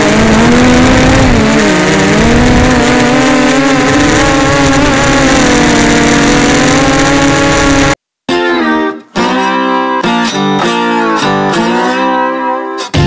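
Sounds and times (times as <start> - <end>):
drone propellers whining: 0.0 - 8.0
guitar music: 0.0 - 13.0.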